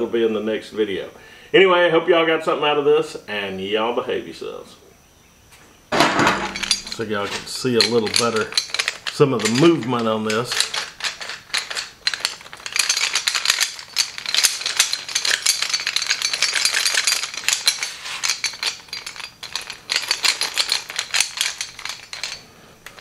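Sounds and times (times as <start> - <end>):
metal armor plates clattering: 5.9 - 23.0.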